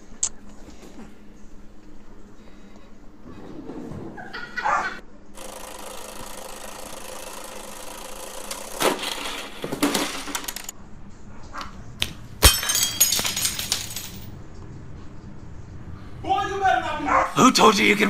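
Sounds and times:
plastic pieces clattering: 8.8 - 10.7, 12.4 - 14.2.

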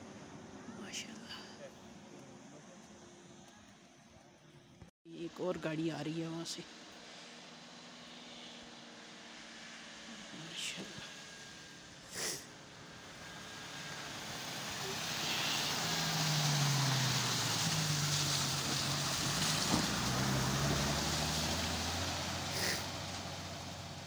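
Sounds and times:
tyres hissing on slush: 12.0 - 24.0
car engine driving past: 12.7 - 24.0.

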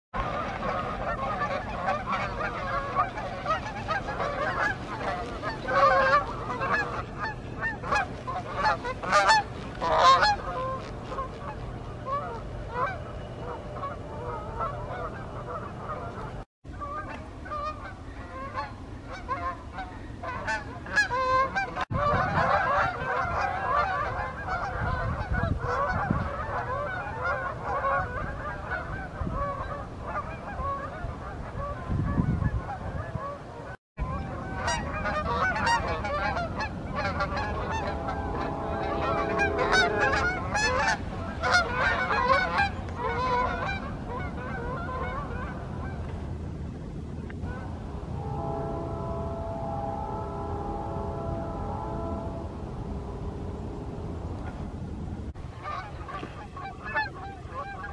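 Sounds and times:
geese honking: 0.2 - 46.1, 47.2 - 54.8, 55.4 - 57.9.

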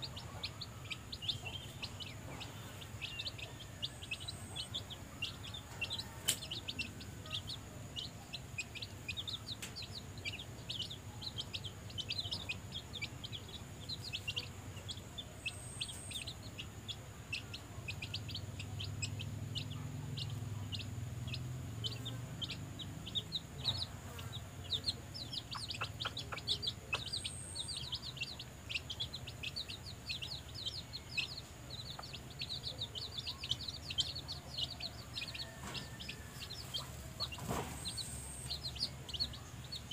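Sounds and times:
hen clucking softly: 0.0 - 39.8
chicks peeping: 0.0 - 39.9.

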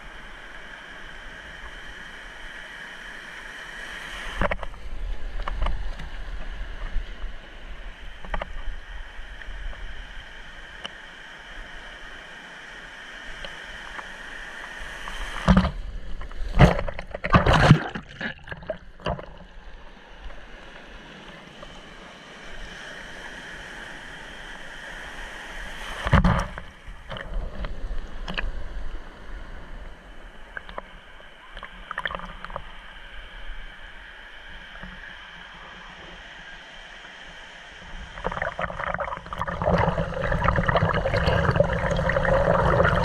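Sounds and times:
water splashing against camera: 15.2 - 19.5, 38.0 - 43.0
breaking waves rushing: 37.7 - 43.0.

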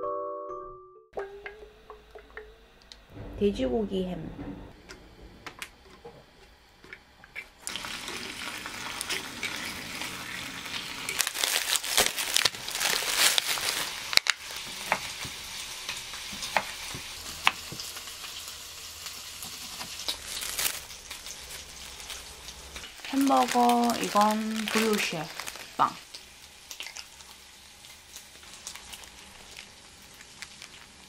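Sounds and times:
ham sizzling in frying pan: 6.8 - 31.0
plastic pack crinkling: 8.9 - 14.8, 19.8 - 31.0.

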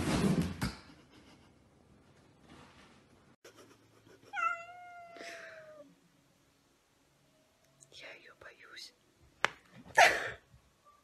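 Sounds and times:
cat meowing: 4.4 - 5.9.

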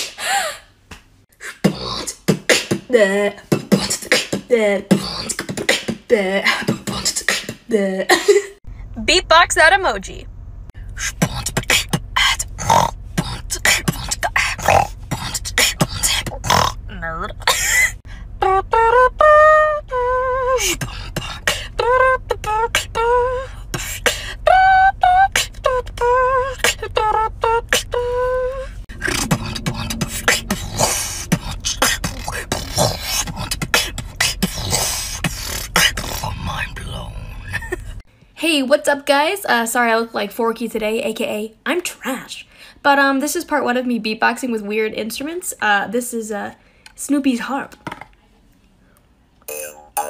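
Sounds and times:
woman beatboxing: 1.4 - 8.1, 10.9 - 18.0, 20.5 - 38.0.

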